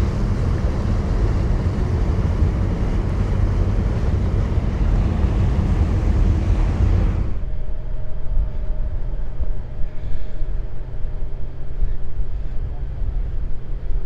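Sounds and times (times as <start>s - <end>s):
propeller wash churning water: 0.0s - 7.4s
ferry engines rumbling: 0.0s - 9.4s
wind buffeting microphone: 0.0s - 14.0s.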